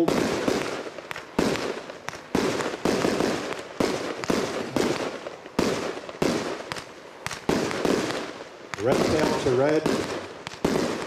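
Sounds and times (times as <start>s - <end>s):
fireworks bangs: 0.0s - 11.0s.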